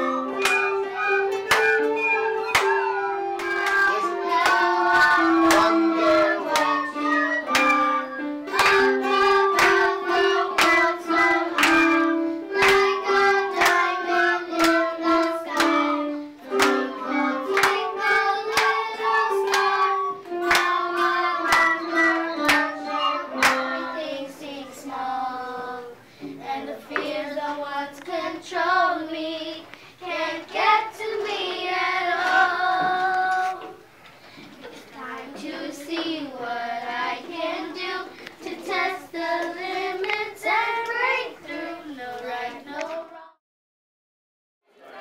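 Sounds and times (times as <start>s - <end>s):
hands clapping: 0.0s - 15.9s, 16.5s - 23.8s
children singing: 0.0s - 33.9s, 34.6s - 43.4s.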